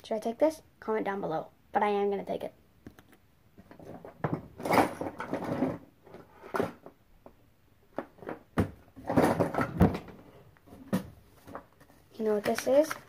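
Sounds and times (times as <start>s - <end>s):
toys rustling and knocking: 2.9s - 13.0s.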